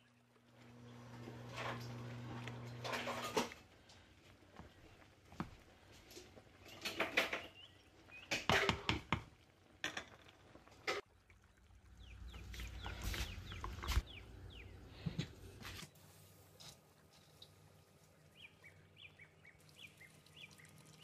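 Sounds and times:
water boiling: 0:00.0 - 0:21.0
spoon knocking against a pot: 0:08.3 - 0:09.3.

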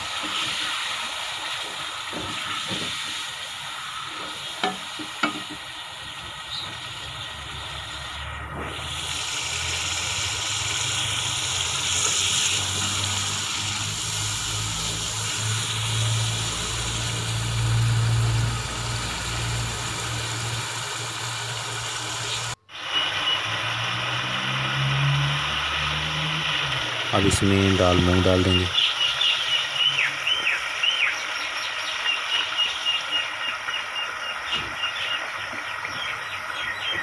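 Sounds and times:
sauce bubbling in a pot: 0:00.0 - 0:27.1.

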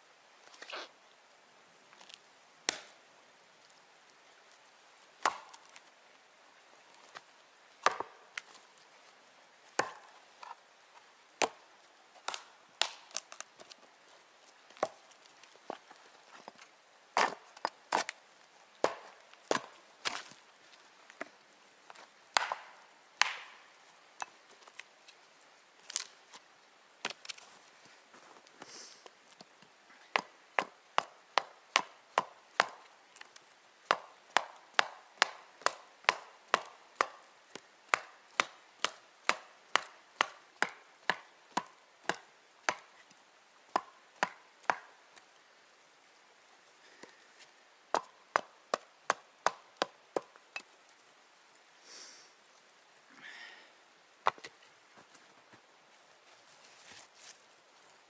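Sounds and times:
hand tool striking wood: 0:23.2 - 0:23.5.

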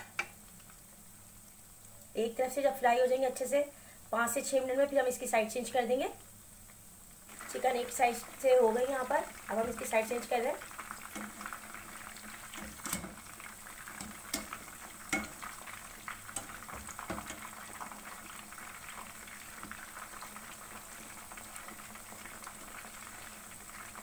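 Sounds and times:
chicken sizzling in hot oil: 0:00.0 - 0:24.0
utensil knocking in pan: 0:12.5 - 0:13.2, 0:13.9 - 0:15.5, 0:16.3 - 0:17.5.

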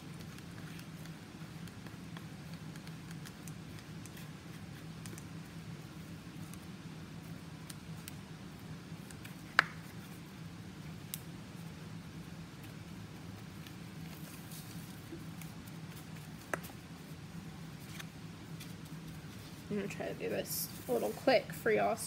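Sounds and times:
low room hum: 0:00.0 - 0:22.0.

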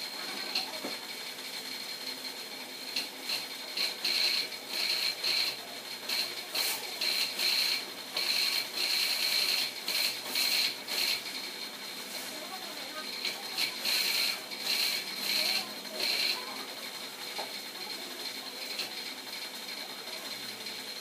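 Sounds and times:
pressure washer spraying foam: 0:03.0 - 0:11.4, 0:12.0 - 0:16.7.

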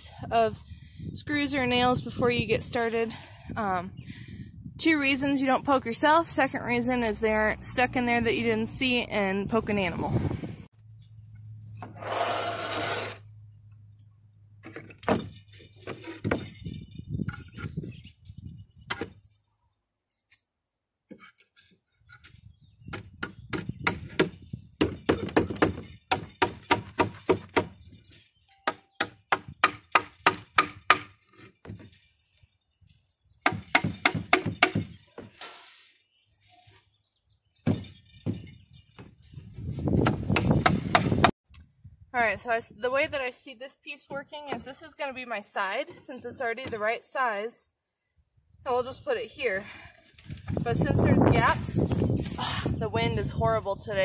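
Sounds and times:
hammer blows on wooden panels: 0:33.4 - 0:35.0, 0:40.0 - 0:41.3.

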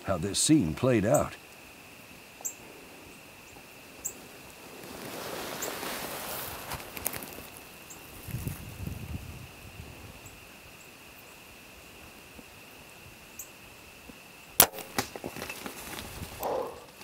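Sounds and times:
snaps and rustles of brush: 0:04.8 - 0:08.6, 0:14.6 - 0:17.0
bow shot crack: 0:14.6 - 0:15.4.

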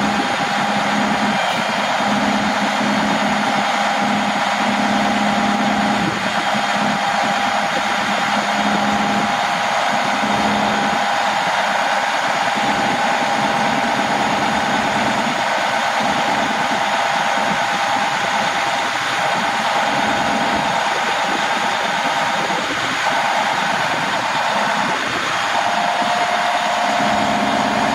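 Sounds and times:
diesel engine drone: 0:00.0 - 0:27.9
hydraulic whine: 0:00.0 - 0:27.9
low hydraulic hum: 0:00.0 - 0:27.9.

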